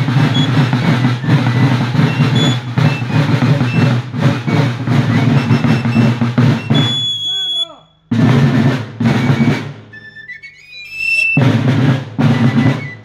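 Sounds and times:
high fife notes: 0.0 - 7.9
field drums rolling: 0.0 - 13.0.

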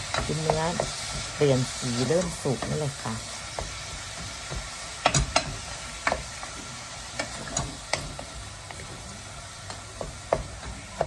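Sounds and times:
meat sizzling in a frying pan: 0.0 - 11.0
wooden spoon knocking on pan: 0.1 - 1.3, 3.5 - 8.9, 9.7 - 11.0.

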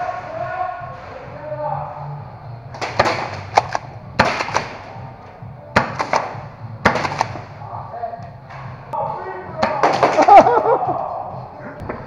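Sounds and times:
airsoft gunfire cracks: 2.8 - 4.9, 5.8 - 7.5.

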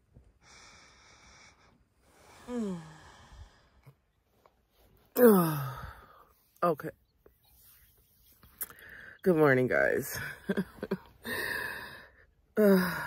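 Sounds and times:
woman sighing: 2.2 - 3.6, 5.1 - 6.3, 11.2 - 13.0.

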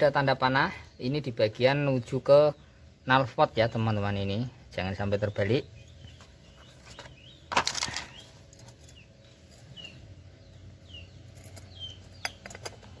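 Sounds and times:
small bird chirping: 0.0 - 13.0
metal clatter: 11.3 - 13.0.

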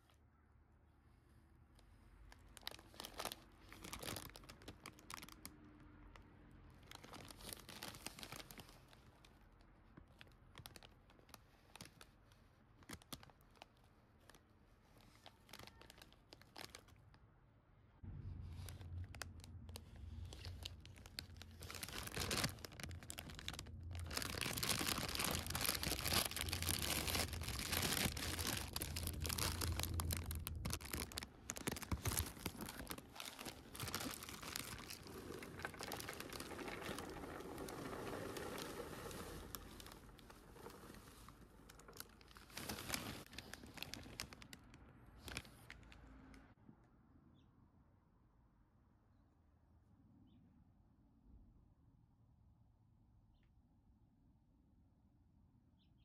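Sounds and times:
popcorn bag crinkling: 2.2 - 17.2, 18.4 - 46.0
bag tearing open: 2.6 - 5.4, 6.8 - 9.0, 18.6 - 44.6, 45.2 - 45.8.

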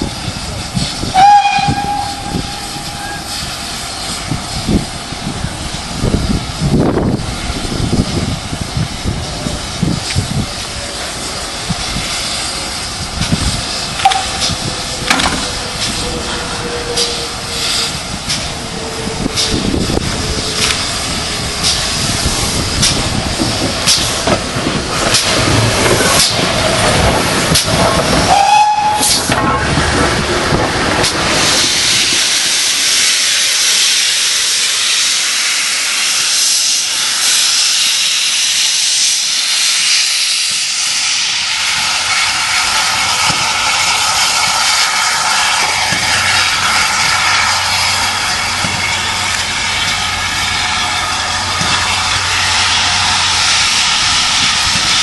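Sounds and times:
low train rumble: 0.0 - 55.0
steam whistle toot: 1.1 - 3.5, 15.9 - 18.0, 28.3 - 29.8
steam hissing from drain cocks: 31.0 - 55.0.

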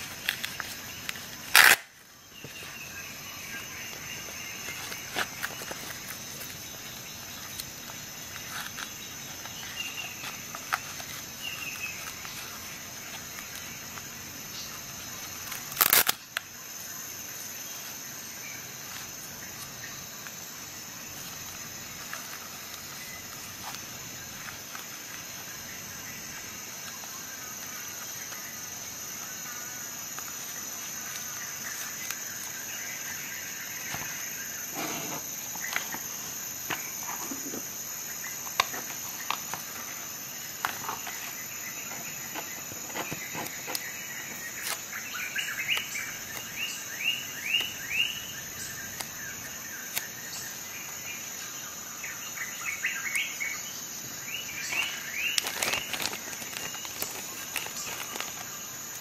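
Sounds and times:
steady high hiss: 0.0 - 59.0
pouch and plastic bag rustling: 54.6 - 59.0.

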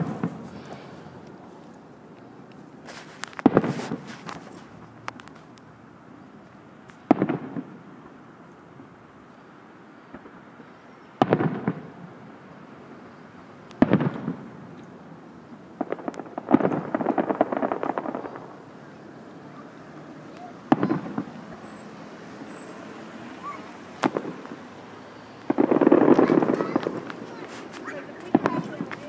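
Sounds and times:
fireworks bursting with sharp bangs: 0.0 - 1.8, 2.4 - 5.6, 6.8 - 8.4, 10.0 - 29.0
rapid crackling pops: 0.0 - 5.7, 13.6 - 15.0, 15.6 - 21.8, 23.4 - 29.0.

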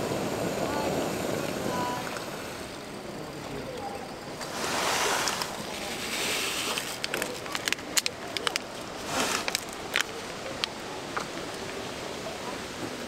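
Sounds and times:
gas burner hissing: 0.0 - 2.8, 4.4 - 7.7
coffee packet crinkling: 6.7 - 10.7.

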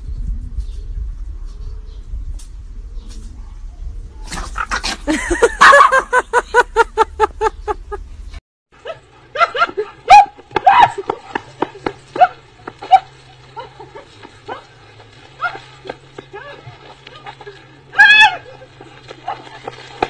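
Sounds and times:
low hum: 0.0 - 20.0
dog barking rapidly: 5.6 - 6.1, 8.9 - 13.2.

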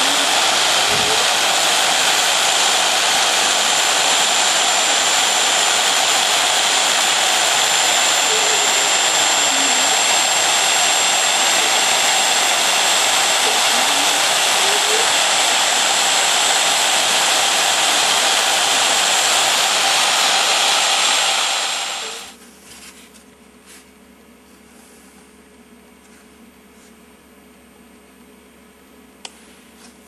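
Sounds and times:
router spindle hiss and whine: 0.0 - 22.4.

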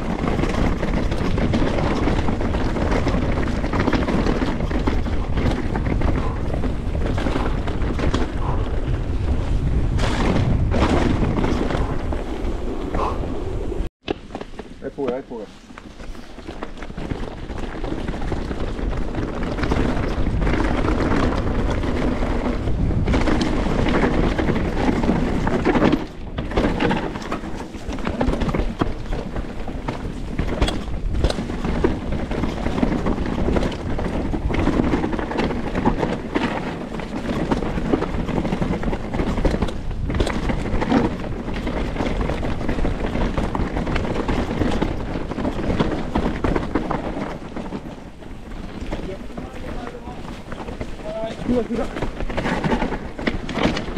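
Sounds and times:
bike knocking and rattling: 0.0 - 53.9
bike tyres rumbling over dirt: 0.0 - 53.9.

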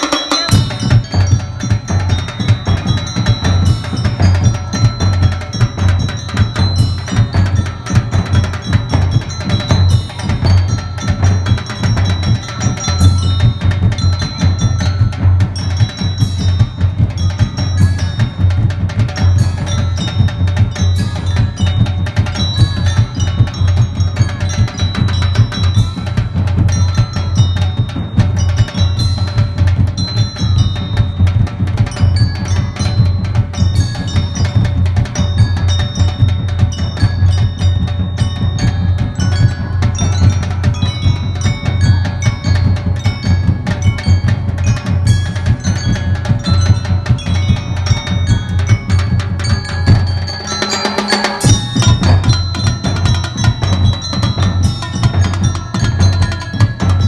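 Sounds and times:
bass and snare drums beat: 0.0 - 57.0
mallet percussion notes: 0.0 - 57.0.

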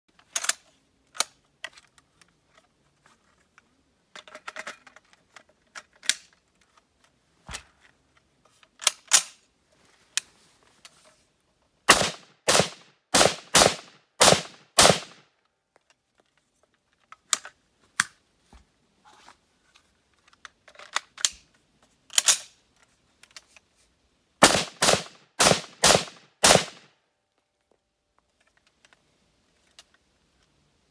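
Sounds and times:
metallic clicks of rifle handling: 0.1 - 2.7, 4.1 - 7.1, 8.2 - 9.5, 15.7 - 18.2, 20.1 - 23.7
rifle shots: 11.9 - 15.2, 24.4 - 26.9.

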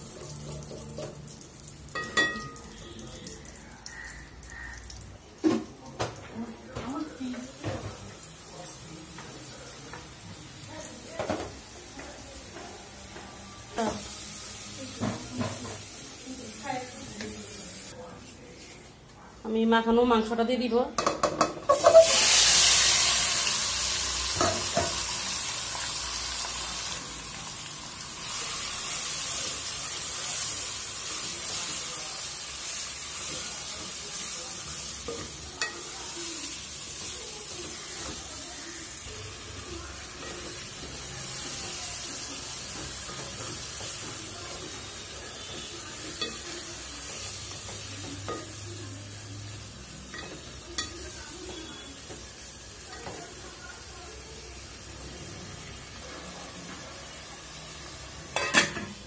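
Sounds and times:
meat sizzling in oil: 13.6 - 18.0, 21.7 - 59.0.

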